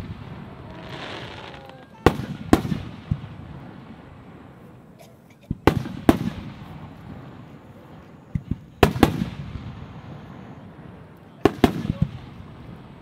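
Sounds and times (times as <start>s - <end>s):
firework shells booming: 0.0s - 4.6s, 5.4s - 10.6s
soft firework pops: 8.3s - 9.4s.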